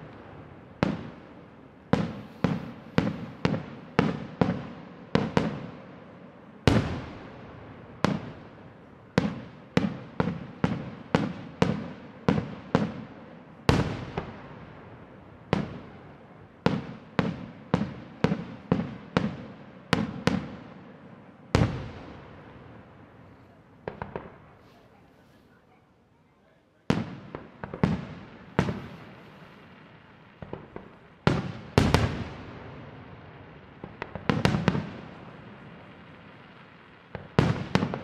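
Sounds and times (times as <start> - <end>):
heavy firework booms: 0.0 - 5.9, 6.7 - 13.1, 26.9 - 36.5.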